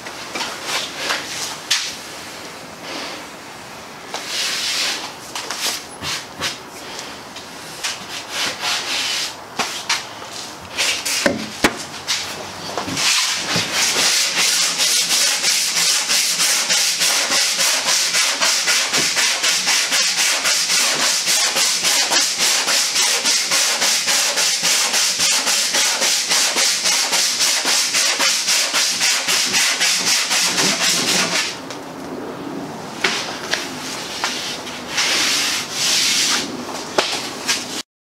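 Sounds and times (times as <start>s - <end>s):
sandpaper rasping back and forth: 7.9s - 9.9s, 13.0s - 31.6s, 34.1s - 36.5s.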